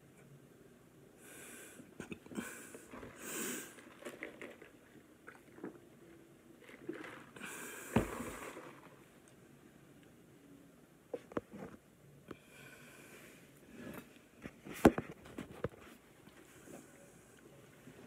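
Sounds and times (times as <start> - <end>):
cup thump: 7.9 - 8.6.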